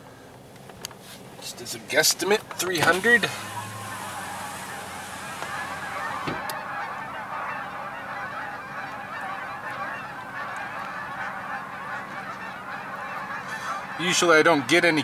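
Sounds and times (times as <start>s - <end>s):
flock of geese honking: 1.4s - 15.0s.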